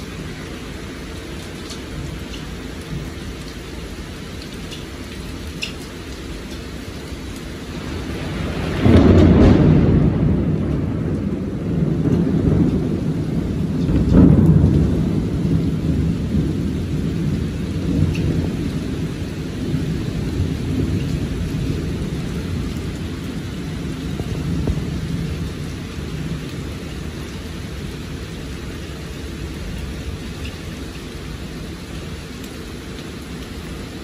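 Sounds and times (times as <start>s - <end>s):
heavy rain: 0.0s - 34.0s
thunder rumbling: 7.6s - 34.0s.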